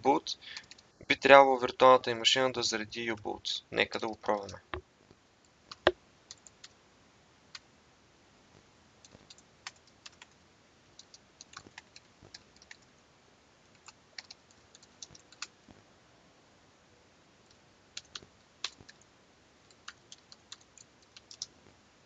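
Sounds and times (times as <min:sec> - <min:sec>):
typing on keyboard: 0:00.5 - 0:00.8, 0:05.7 - 0:06.8, 0:09.1 - 0:10.4, 0:11.0 - 0:12.8, 0:13.7 - 0:15.5, 0:17.5 - 0:19.0, 0:19.7 - 0:21.6.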